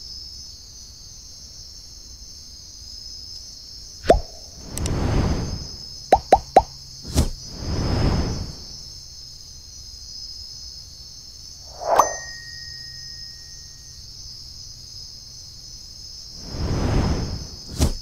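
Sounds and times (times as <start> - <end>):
night insects chorus: 0.0 - 18.0
swoosh: 11.7 - 13.0, 16.4 - 18.0
low hum: 11.7 - 13.8
bell-like ding: 11.7 - 14.0.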